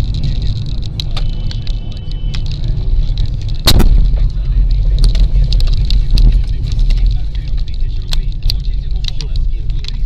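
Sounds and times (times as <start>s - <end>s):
car road noise rumble: 0.0s - 10.0s
sharp bang: 3.6s - 4.2s.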